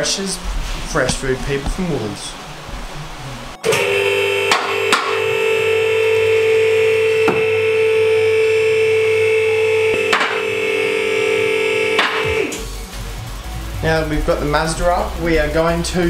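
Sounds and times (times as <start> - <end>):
hydraulic pump motor humming: 0.0 - 12.7.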